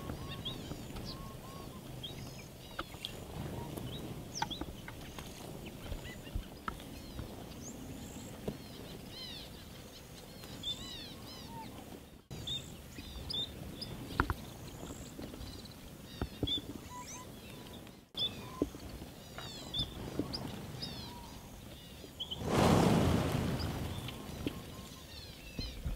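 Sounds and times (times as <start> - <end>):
steady outdoor hiss: 0.0 - 25.9.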